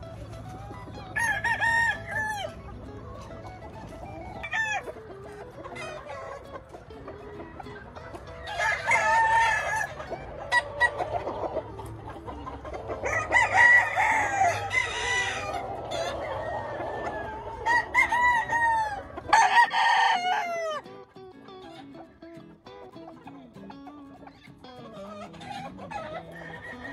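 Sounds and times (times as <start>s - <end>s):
roosters crowing: 0.0s - 2.7s, 4.0s - 4.9s, 5.7s - 20.9s, 24.8s - 26.9s
chickens clucking: 0.0s - 26.9s.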